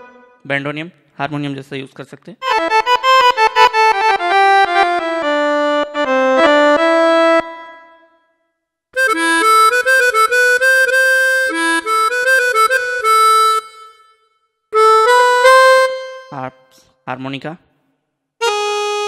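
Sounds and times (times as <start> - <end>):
keyboard bandoneon melody: 0.0 - 0.5, 2.4 - 8.3, 9.0 - 16.8, 18.4 - 19.0.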